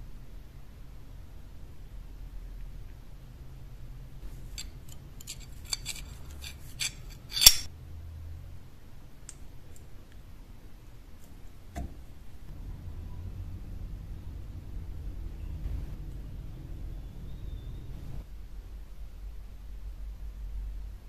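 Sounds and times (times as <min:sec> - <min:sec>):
metal clicks and scrapes: 0:04.3 - 0:07.7
metal clink: 0:04.5 - 0:07.7.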